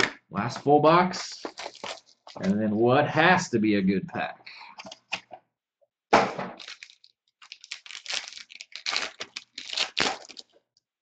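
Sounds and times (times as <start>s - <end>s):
foil pack crinkling and tearing: 1.5s - 2.4s, 6.6s - 10.6s.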